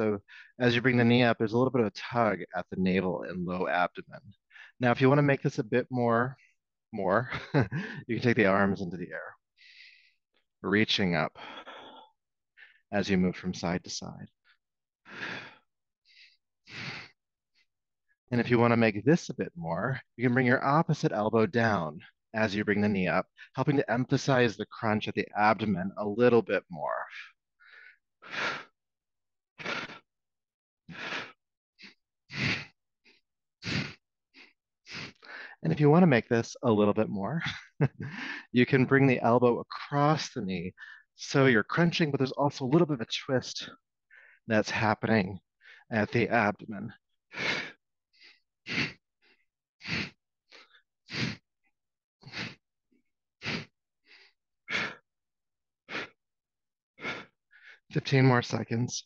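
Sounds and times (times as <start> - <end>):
faint inhales: 9.6 - 10.2
short breaths: 9.6 - 10.2, 14.5 - 17.2, 30.9 - 32.8, 33.6 - 35.6, 47.3 - 51.4, 52.2 - 52.6, 57.0 - 57.9.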